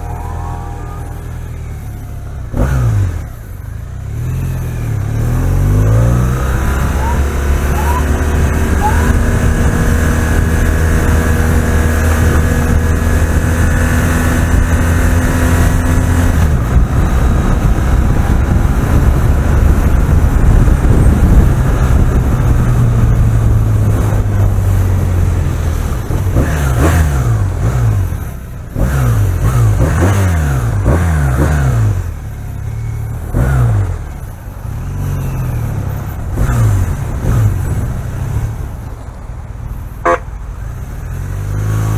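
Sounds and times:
motorcycle engine revving: 0.0s - 39.1s, 39.7s - 41.9s
wind noise: 5.3s - 32.0s.

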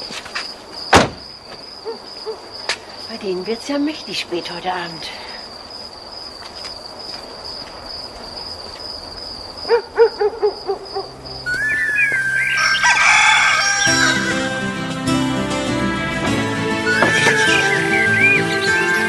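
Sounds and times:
crickets chirping: 0.0s - 14.9s, 16.7s - 19.0s
chicken calling loudly: 9.7s - 14.6s
music: 11.0s - 19.0s.

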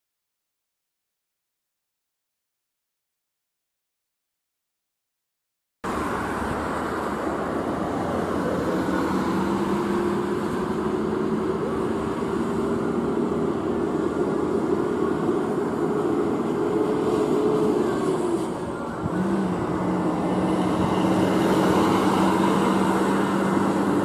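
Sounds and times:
diesel truck engine pulling away: 5.9s - 24.0s.

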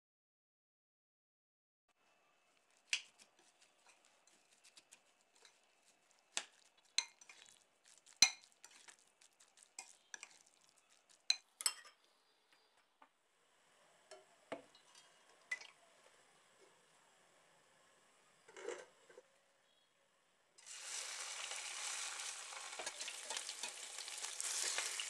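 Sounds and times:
spoon scraping glass bowl: 2.9s - 12.0s
oil pouring into pan: 20.6s - 25.0s.

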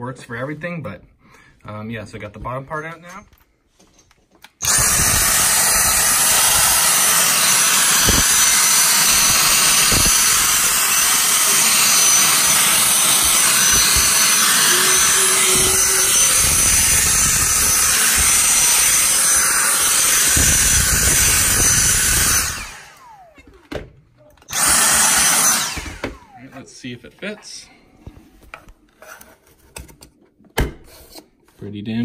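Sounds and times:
handheld vacuum running: 4.6s - 23.8s, 24.4s - 26.6s.

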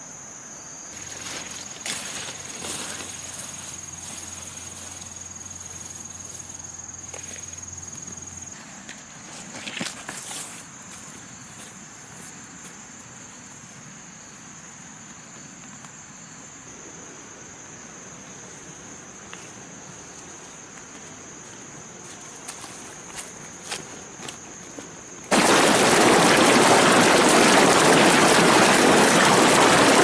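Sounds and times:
high-pitched insect drone: 0.0s - 8.6s
light footsteps: 19.2s - 25.1s.

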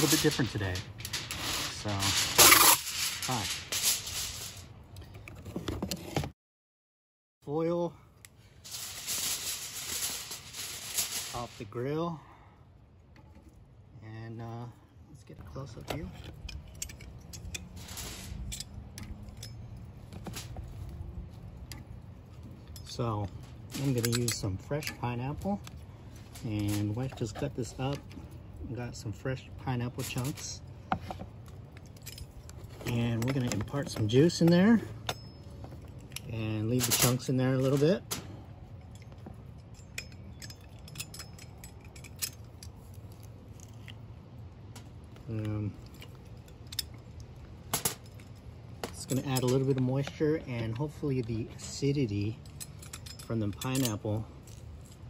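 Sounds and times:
aluminium foil crinkling: 0.0s - 4.7s, 8.6s - 11.6s
steady low hum: 0.0s - 5.3s
low background hum: 0.0s - 6.1s, 7.4s - 55.0s.

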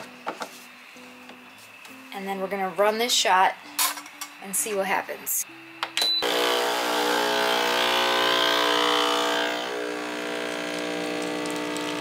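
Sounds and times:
espresso machine beep: 6.0s - 6.8s
espresso machine hiss: 6.2s - 12.0s
espresso machine pump humming: 6.2s - 12.0s.

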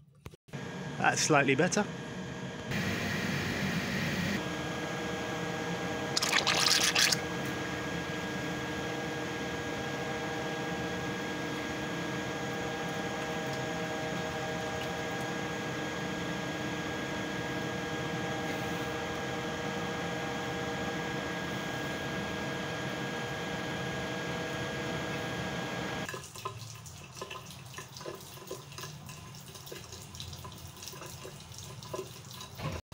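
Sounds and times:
machinery humming: 0.6s - 6.3s.

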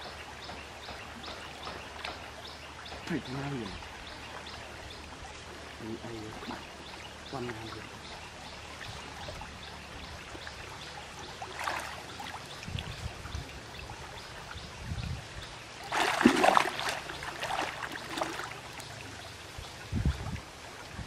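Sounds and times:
water splashing around wading person: 8.6s - 14.4s, 15.8s - 19.5s.

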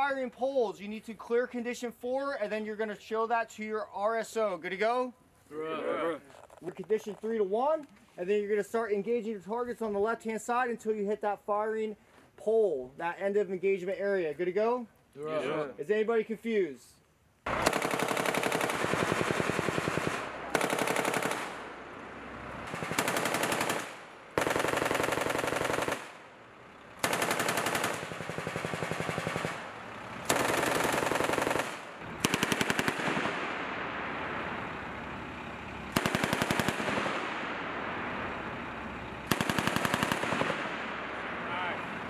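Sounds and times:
machine gun bursts: 17.5s - 21.7s, 22.6s - 26.2s, 27.0s - 33.4s, 35.9s - 37.3s, 39.3s - 40.7s
gunfire echo: 17.5s - 26.3s, 27.0s - 34.7s, 35.9s - 38.6s, 39.2s - 41.6s.

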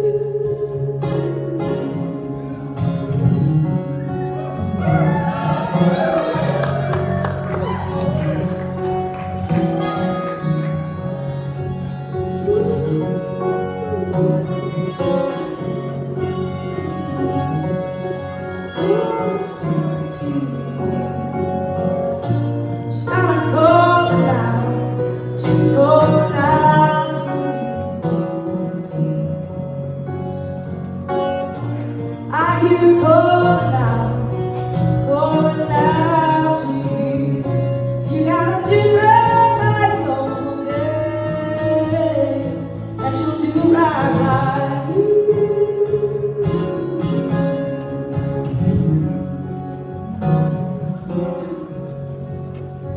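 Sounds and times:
woman singing: 0.0s - 4.0s, 12.2s - 18.0s, 18.8s - 21.8s, 22.8s - 28.1s, 32.2s - 49.7s
picked acoustic guitar: 0.0s - 52.9s.

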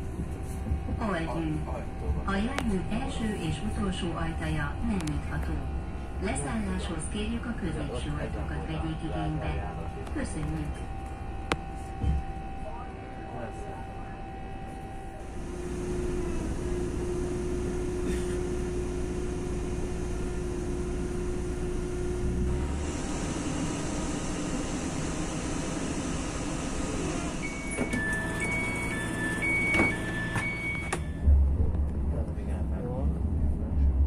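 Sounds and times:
tram electric drive whine: 0.0s - 34.0s
two-tone door signal beeps: 27.4s - 31.3s.

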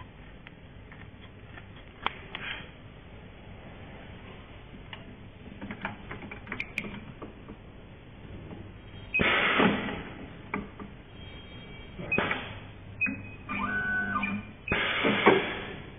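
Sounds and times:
loud mechanical burst: 14.7s - 15.8s.

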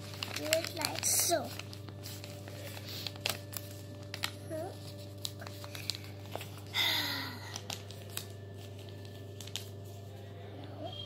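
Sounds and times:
paper crinkling and rustling: 0.0s - 10.9s.

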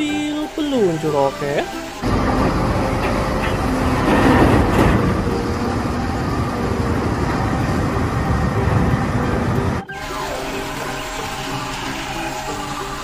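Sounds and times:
engine-like rumble: 2.0s - 9.9s.

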